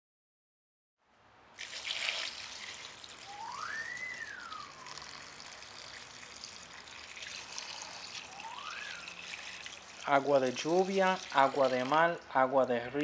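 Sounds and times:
water trickling into metal bowl: 1.6 - 12.3
whistle-like tone: 2.6 - 6.0, 7.4 - 9.6.

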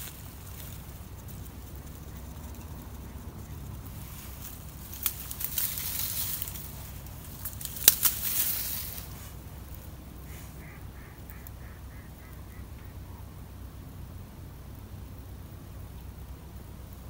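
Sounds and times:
rushing hiss: 3.4 - 12.2
waterbird calls: 10.2 - 13.3.

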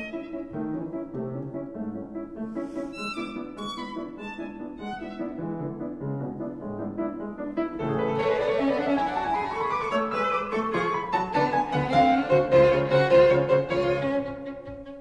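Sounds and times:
instrumental background music: 0.0 - 9.3.

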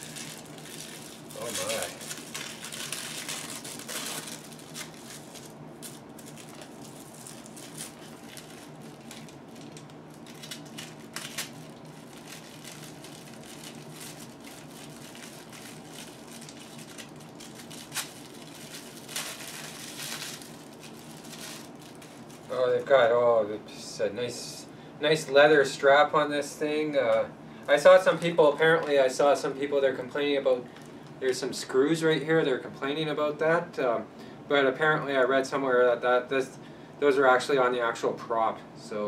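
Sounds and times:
tissue paper crinkling: 0.0 - 22.5.

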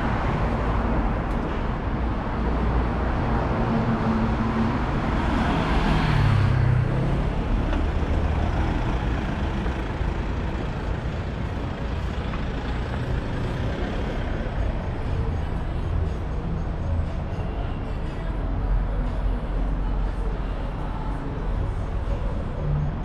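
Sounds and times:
steady traffic hum: 0.0 - 23.0.

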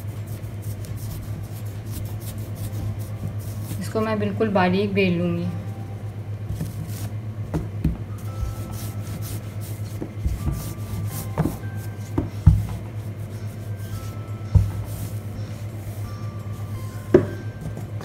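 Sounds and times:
rolling pin rubbing dough: 0.0 - 4.6, 5.9 - 18.0
steady low hum: 0.0 - 18.0
rolling pin knocking on table: 10.0 - 12.8, 17.1 - 17.9.

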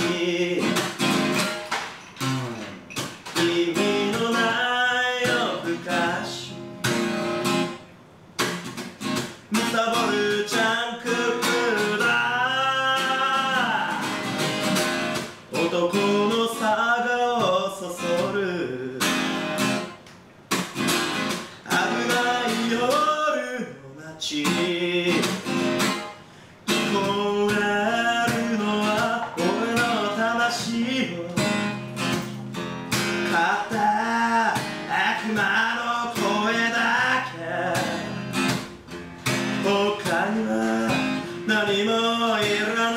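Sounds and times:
man singing: 0.0 - 1.3, 3.0 - 6.6, 9.5 - 14.7, 15.5 - 19.2, 21.5 - 25.8, 26.7 - 32.1, 32.9 - 38.6, 39.3 - 42.9
acoustic guitar strumming: 0.0 - 42.9.

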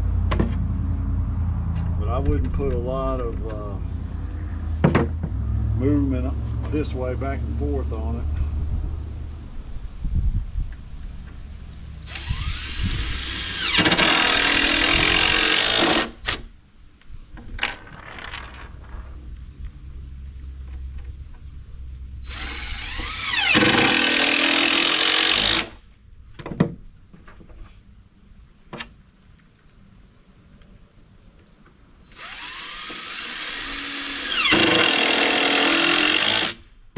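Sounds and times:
cordless drill driving screws: 12.0 - 16.5, 22.2 - 25.8, 32.1 - 36.6.

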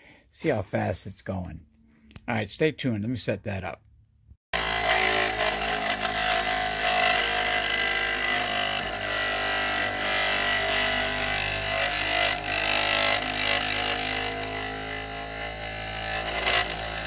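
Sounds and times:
high motor whine: 4.6 - 17.0
motor mechanical racket: 4.6 - 17.0.

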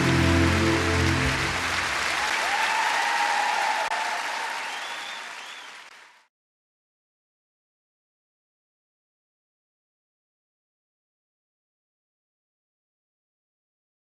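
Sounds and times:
band holding final chord: 0.0 - 2.2
audience applause and cheering: 0.0 - 6.3.

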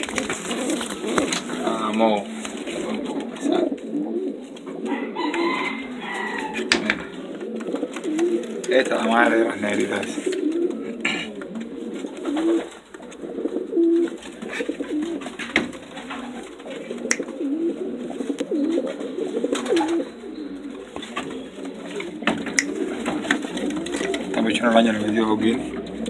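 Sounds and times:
pigeons cooing: 0.0 - 26.0
sharp clicks: 17.0 - 17.3, 22.0 - 24.2.

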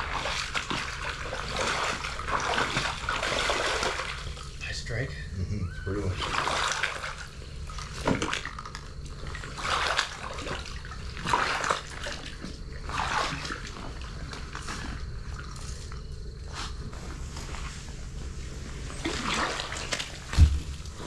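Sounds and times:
water splashing and sloshing: 0.0 - 21.0
steady low rumble: 16.0 - 21.0.

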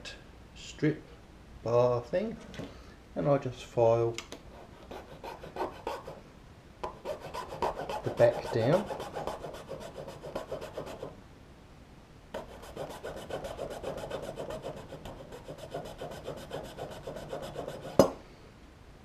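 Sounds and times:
file filing plastic: 4.5 - 6.2, 6.9 - 11.2, 12.4 - 18.1.

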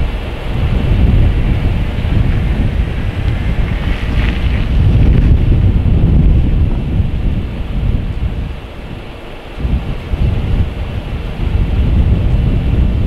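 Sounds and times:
gusty wind buffeting microphone: 0.0 - 13.0.

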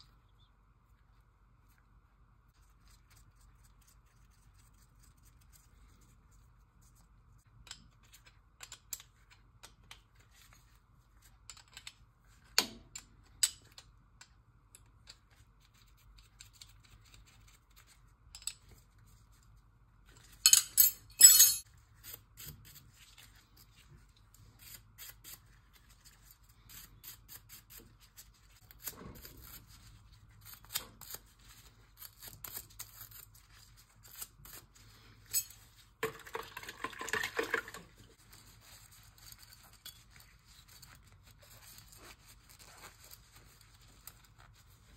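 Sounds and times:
rustling rub: 38.1 - 44.9.

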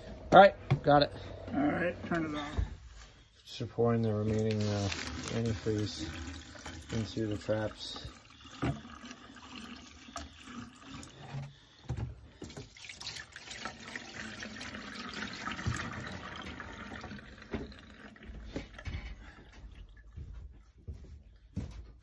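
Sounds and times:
liquid running from faucet: 4.1 - 11.4, 12.4 - 18.9
liquid splashing into sink: 4.3 - 11.2, 12.4 - 18.9.

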